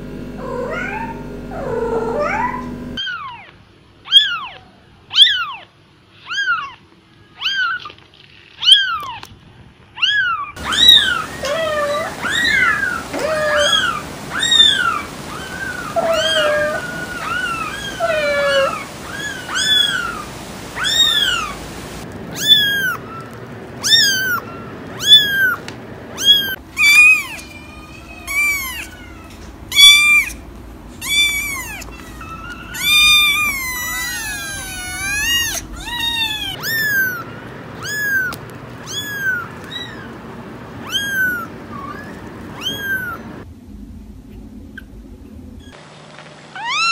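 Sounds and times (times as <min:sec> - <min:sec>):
kittens meowing: 0:10.0 - 0:40.2, 0:40.8 - 0:43.4.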